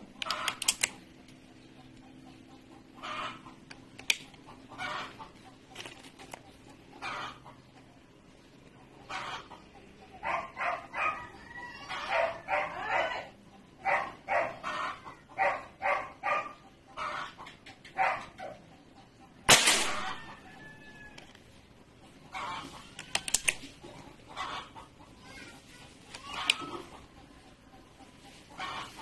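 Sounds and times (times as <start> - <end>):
air rifle shot with ring: 19.5 - 20.2.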